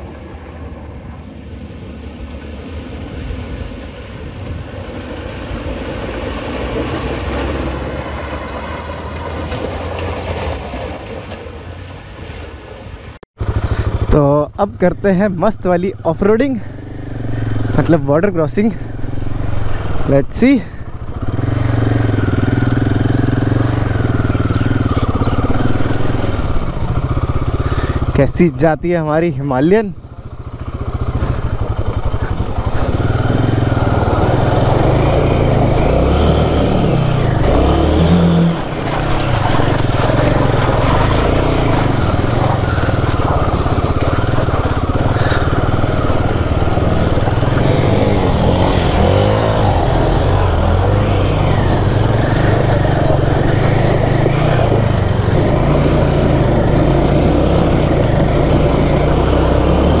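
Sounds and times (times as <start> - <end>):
motorcycle engine running under load: 13.4 - 28.6, 30.0 - 60.0.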